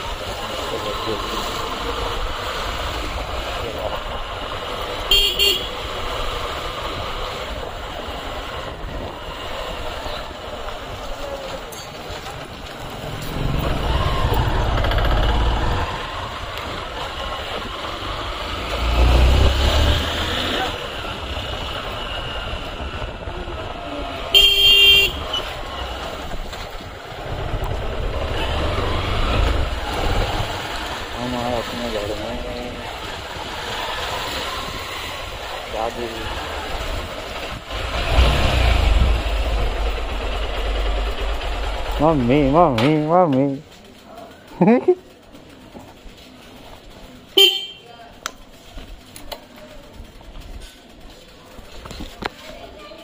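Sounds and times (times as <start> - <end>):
motorcycle riding noise: 0.0 - 53.0
horn beeps: 24.4 - 25.5, 47.4 - 47.9.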